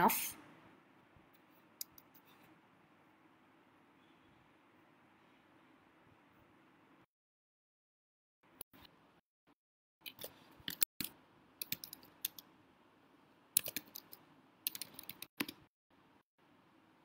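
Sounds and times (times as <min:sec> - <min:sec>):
computer keyboard typing: 0:10.0 - 0:12.5, 0:13.6 - 0:15.7.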